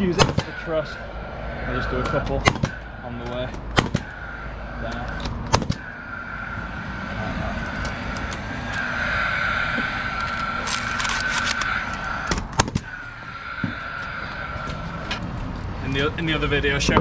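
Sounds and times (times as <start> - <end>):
steady high whine: 0.0 - 16.8.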